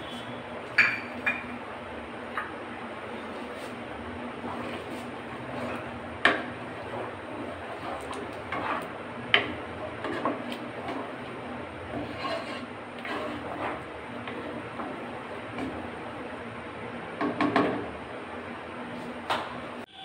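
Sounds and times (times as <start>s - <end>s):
wooden spoon scraping pot: 3.2s - 16.2s.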